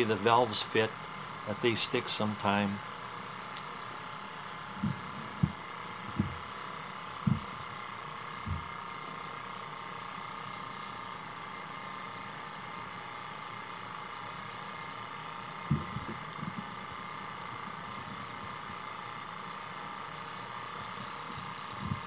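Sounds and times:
knocks: 4.8s - 6.4s, 7.2s - 7.5s, 15.7s - 16.7s.

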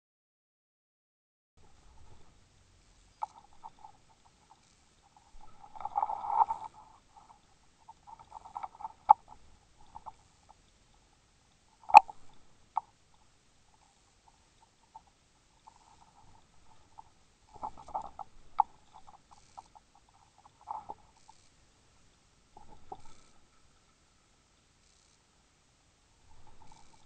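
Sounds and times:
underwater crackling and clicking: 2.9s - 21.6s, 22.5s - 23.9s, 26.3s - 27.0s.

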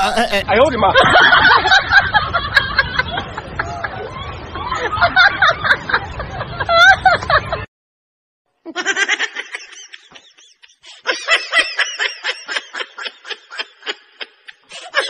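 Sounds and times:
woman giggling: 8.7s - 15.0s.

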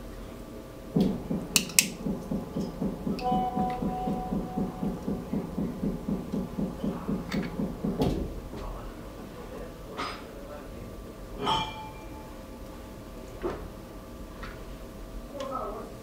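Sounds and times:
low throbbing machine: 1.0s - 8.8s.

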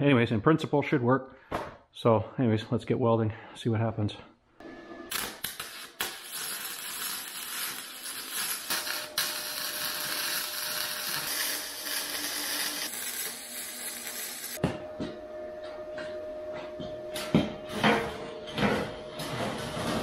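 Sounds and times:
arc welding crackling hiss: 5.1s - 14.6s.

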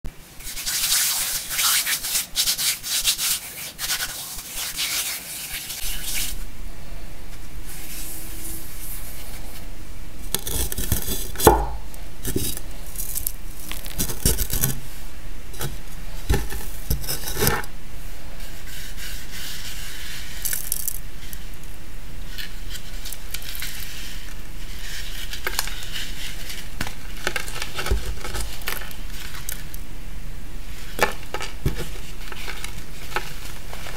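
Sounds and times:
powdery chalk rubbing: 0.4s - 6.5s, 18.4s - 21.4s
chalk crackling: 0.4s - 6.6s, 7.3s - 15.0s, 18.4s - 21.6s, 22.2s - 29.8s.

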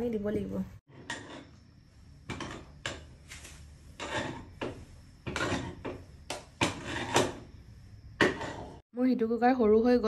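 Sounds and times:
spatula scraping metal pot: 0.9s - 1.6s, 2.2s - 8.8s.

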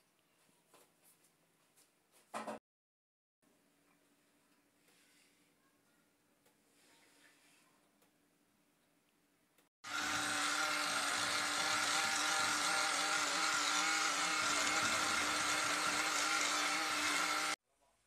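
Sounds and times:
electric mixer motor running: 9.8s - 17.6s.

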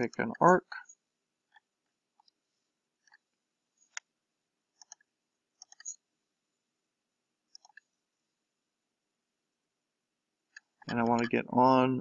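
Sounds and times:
computer mouse clicking: 3.0s - 4.1s, 4.8s - 6.0s, 7.5s - 7.9s, 10.5s - 11.3s.

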